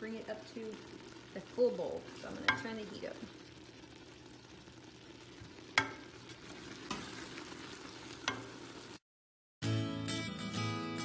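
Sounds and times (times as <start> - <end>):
spatula stirring fruit in a pot: 0.4 - 9.0
spatula knocking against pot: 5.8 - 6.0
acoustic guitar music: 9.6 - 11.0.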